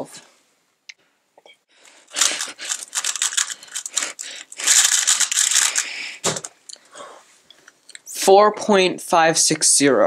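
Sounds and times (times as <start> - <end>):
puzzle cube clattering: 2.0 - 6.6.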